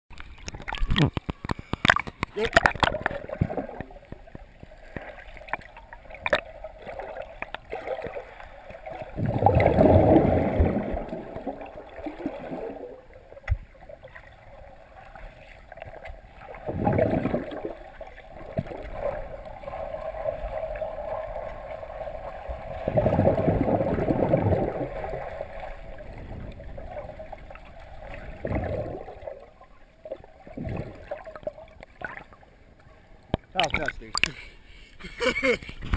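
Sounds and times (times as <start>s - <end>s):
muffled underwater water noise: 0.1s - 35.9s
churning water surges: 1.8s - 32.3s.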